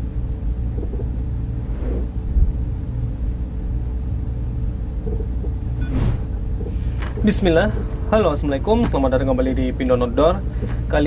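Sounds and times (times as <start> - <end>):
faint even hum: 0.0 - 11.0
low rumble: 0.0 - 11.0.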